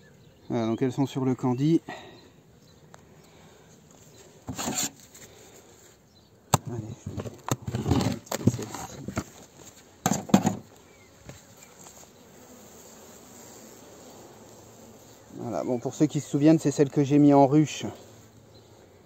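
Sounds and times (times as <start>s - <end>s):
faint buzz of bees: 0.0s - 19.0s
wood and metal knocking and scraping: 4.5s - 5.0s, 6.6s - 9.3s, 10.0s - 10.7s.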